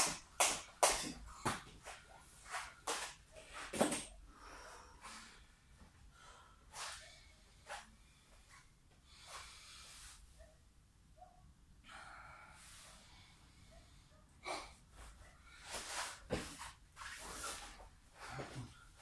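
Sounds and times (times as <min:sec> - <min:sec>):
hands and feet thumping on mat: 0:15.7 - 0:18.7
man panting: 0:18.2 - 0:19.0.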